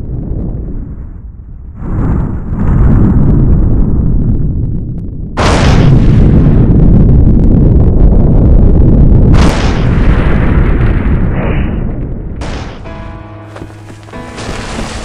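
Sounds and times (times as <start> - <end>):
deep rumbling explosions: 0.0 - 13.4, 14.0 - 15.0
music with held tones: 12.8 - 15.0.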